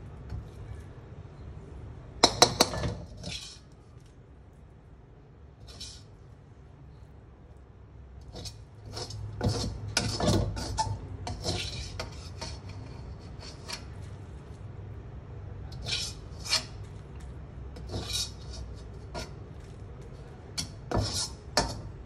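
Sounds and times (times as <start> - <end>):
spatula scraping a steel wok: 2.2 - 3.8, 5.6 - 6.2, 8.2 - 14.6, 15.7 - 17.0, 17.7 - 22.0.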